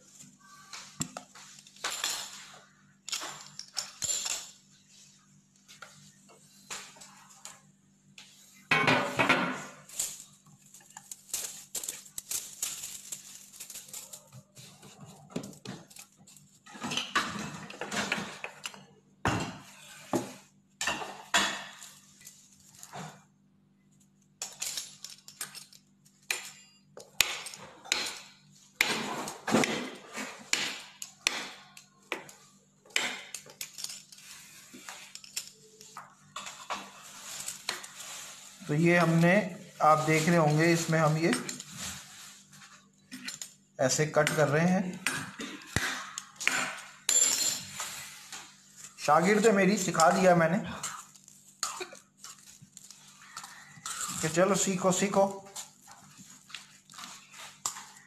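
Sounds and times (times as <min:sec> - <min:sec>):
dough rustling and clattering: 0:00.0 - 0:58.0
foil rustling: 0:09.8 - 0:15.0, 0:37.0 - 0:42.9.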